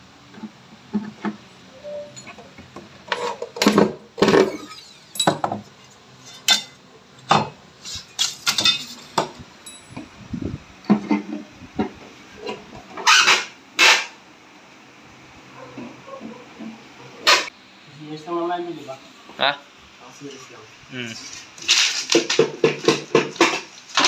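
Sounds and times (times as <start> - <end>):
tools and materials clattering: 2.1 - 10.1
clinks: 9.6 - 10.1.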